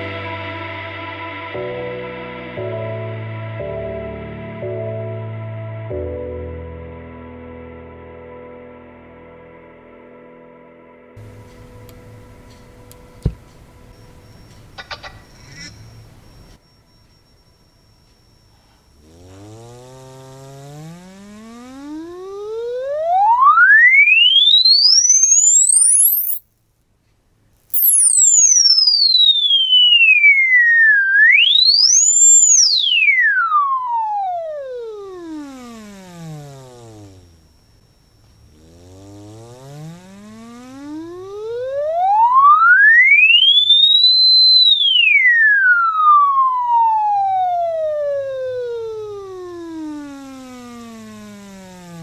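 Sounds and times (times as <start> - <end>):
sine tone sweeping in pitch: 11.2 - 26.4, 27.7 - 52.0.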